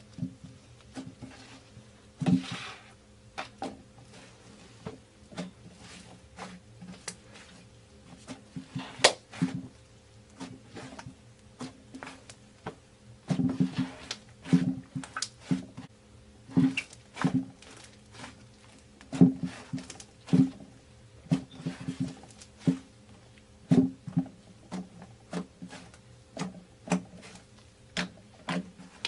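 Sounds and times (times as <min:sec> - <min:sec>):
slime squelching and popping: 0:13.6 - 0:15.6.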